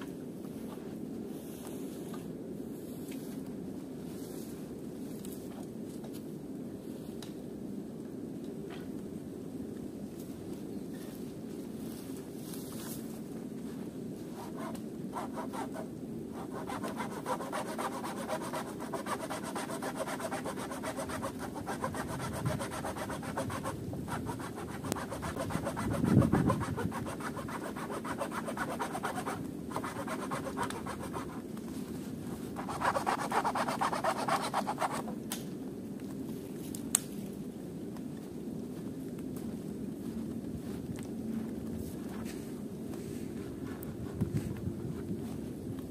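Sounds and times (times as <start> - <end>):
hand saw cutting wood: 14.4 - 31.4, 32.6 - 35.1.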